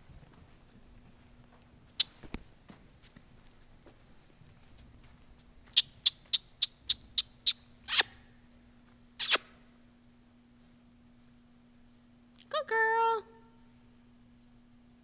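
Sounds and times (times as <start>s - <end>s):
person making kissing sounds: 7.9s - 8.2s, 9.2s - 9.6s.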